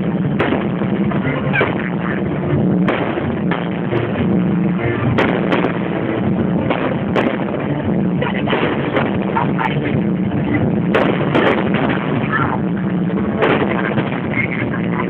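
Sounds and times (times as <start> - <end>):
fireworks bangs: 0.0 - 15.0
steady din: 0.0 - 15.0.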